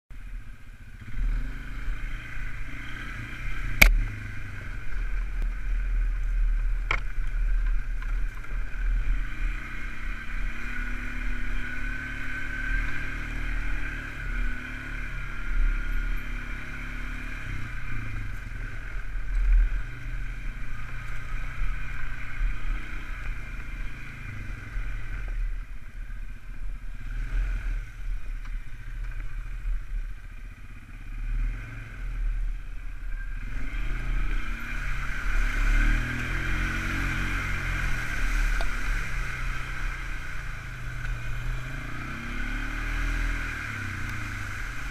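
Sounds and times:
quad bike engine running: 0.1s - 44.9s.

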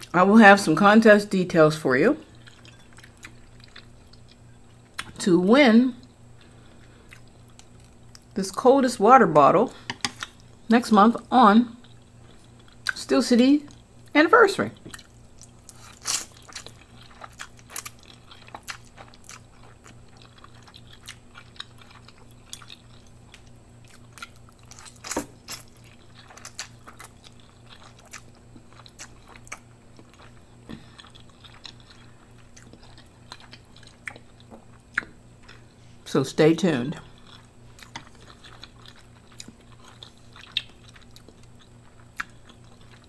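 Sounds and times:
wet chewing: 2.2s - 5.2s, 14.8s - 35.7s, 37.0s - 43.0s.

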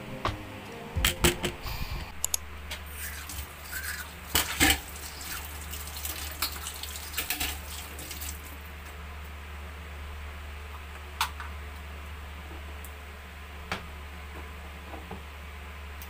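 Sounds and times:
tap water running into sink: 3.2s - 8.5s.

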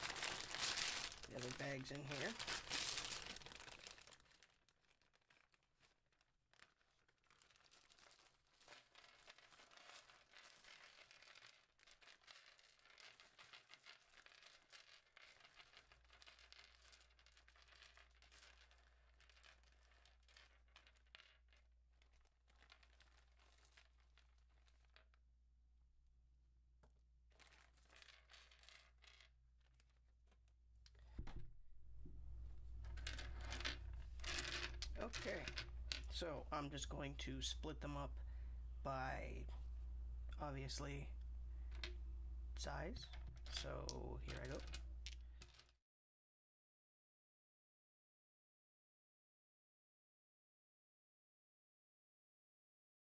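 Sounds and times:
plastic bags crinkling and tearing: 0.0s - 16.2s.

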